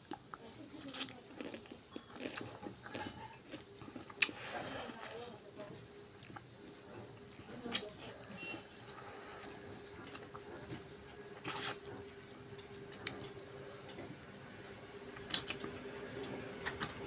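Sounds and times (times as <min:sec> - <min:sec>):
chewing: 0:00.0 - 0:14.3, 0:15.1 - 0:16.4
child slurping noodles: 0:11.4 - 0:11.8.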